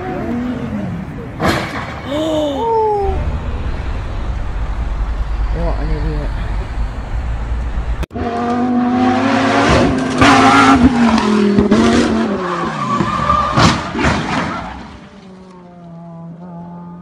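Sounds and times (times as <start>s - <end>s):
tyres skidding: 2.8s - 16.0s.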